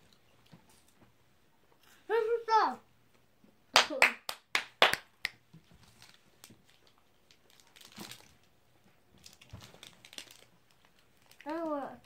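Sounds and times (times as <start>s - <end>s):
plastic wrappers crinkling: 5.7s - 12.0s.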